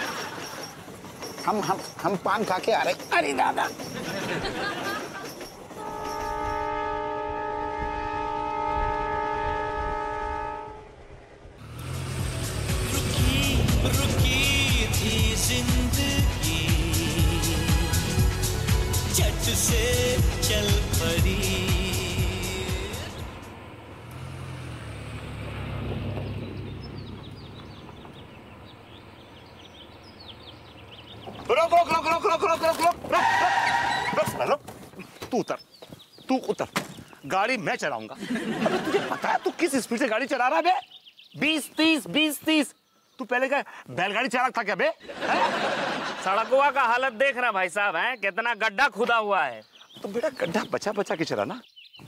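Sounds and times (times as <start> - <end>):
birds chirping: 0.0 - 6.8, 11.7 - 52.0
low rumble of moving train: 0.0 - 34.1
locomotive horn blast: 5.8 - 11.1
car engine hum: 11.6 - 33.2.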